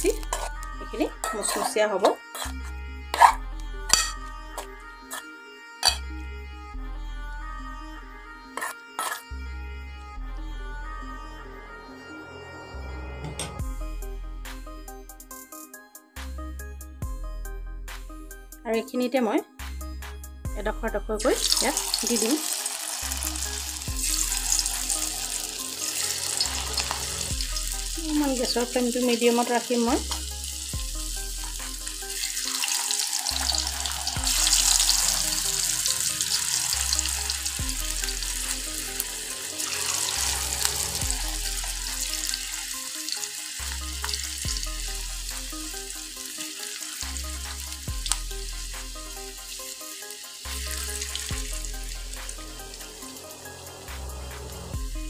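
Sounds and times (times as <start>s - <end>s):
oil sizzling while deep-frying: 0.0s - 3.3s, 21.2s - 54.8s.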